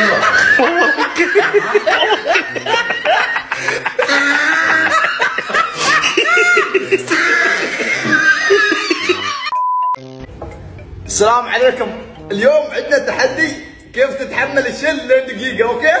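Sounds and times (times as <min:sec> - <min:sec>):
men laughing: 0:00.0 - 0:09.6
music playing: 0:00.0 - 0:16.0.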